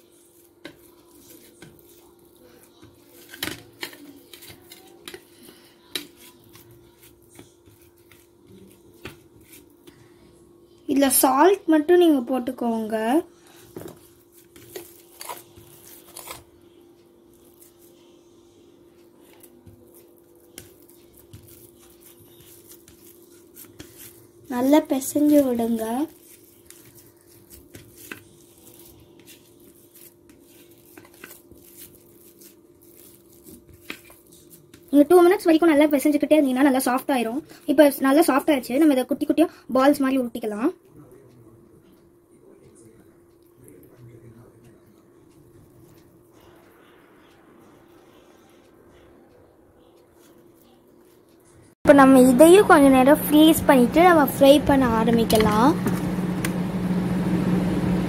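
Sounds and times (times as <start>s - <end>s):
hands kneading dough: 0.0s - 10.4s, 12.8s - 40.0s.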